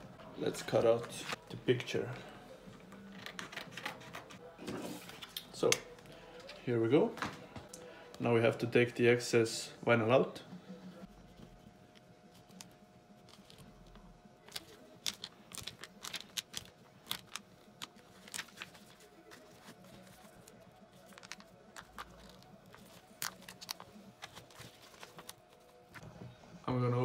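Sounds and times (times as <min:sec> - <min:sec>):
vinyl crackling as peeled: 0:11.1 - 0:26.1.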